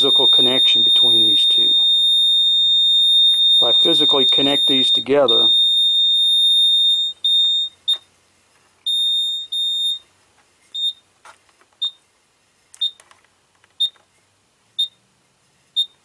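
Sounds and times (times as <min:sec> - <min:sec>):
high-pitched electronic beeps: 0:00.0 - 0:07.7.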